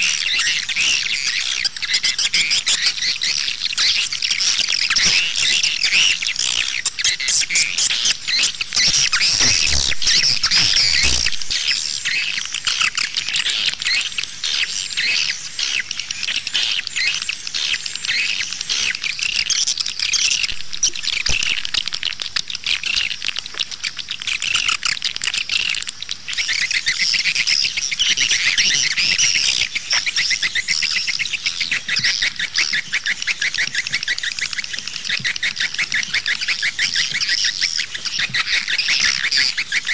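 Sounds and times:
birds twittering rapidly: 0.0s - 39.9s.

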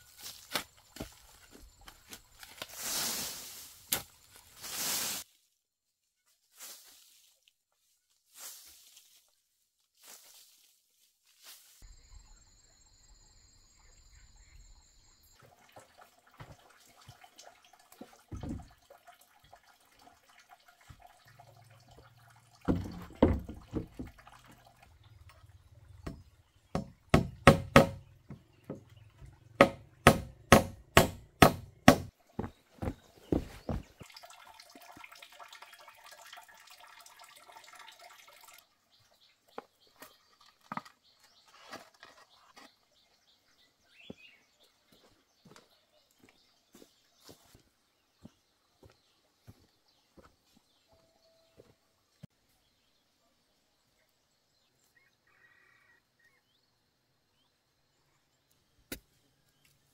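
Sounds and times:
sharp knocks: 26.8s - 28.1s, 29.6s - 32.1s.

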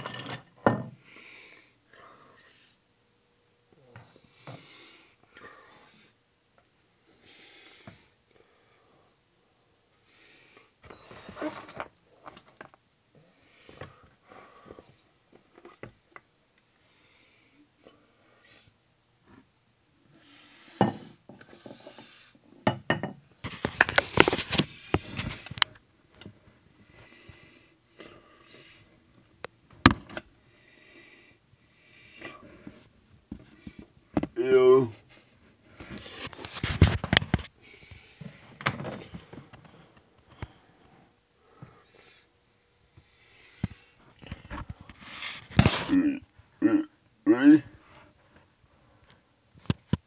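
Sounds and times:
hard objects knocking and clattering: 22.7s - 25.6s
rustling and scraping plastic tub: 23.4s - 25.6s, 35.8s - 37.5s, 44.3s - 46.0s.

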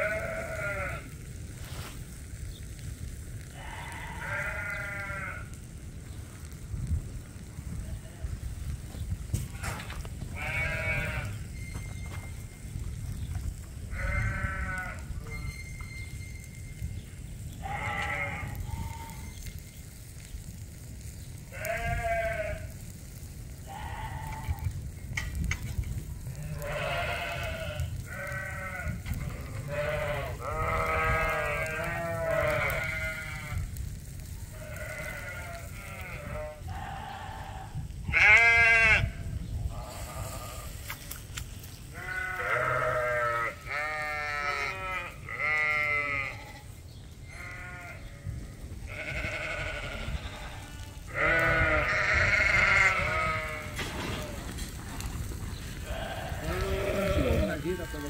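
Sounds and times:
sheep bleating: 0.0s - 1.2s, 3.5s - 5.6s, 9.6s - 11.4s, 13.9s - 15.2s, 17.6s - 19.3s, 21.5s - 22.8s, 26.4s - 33.6s, 34.6s - 40.7s, 41.9s - 46.7s, 47.3s - 54.4s, 55.8s - 58.0s.

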